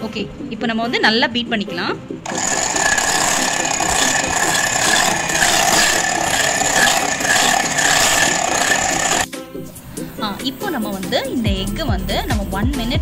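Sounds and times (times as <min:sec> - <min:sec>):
electric hand mixer whisking: 0:02.3 - 0:09.3.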